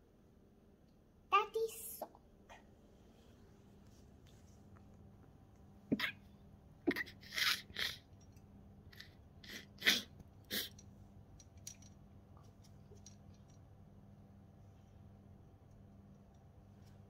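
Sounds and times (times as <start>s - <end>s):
clips clicking and rustling on rack: 10.8s - 13.6s.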